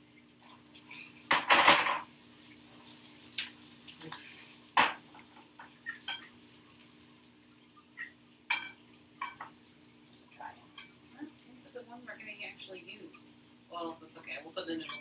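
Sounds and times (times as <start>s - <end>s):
low steady hum: 0.0s - 15.0s
frying pan clattering on stove: 1.3s - 2.1s, 4.8s - 6.3s, 8.5s - 9.6s.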